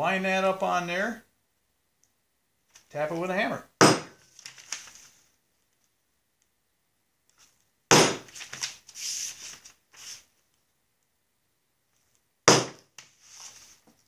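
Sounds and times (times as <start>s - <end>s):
hammer tapping a punch: 3.8s - 4.2s, 12.5s - 12.8s
paper rubbing and scraping: 8.3s - 10.3s, 13.0s - 13.8s.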